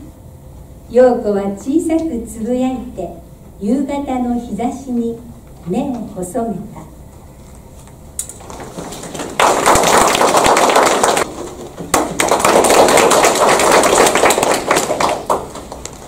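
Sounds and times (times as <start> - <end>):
audience clapping: 8.4 - 16.0.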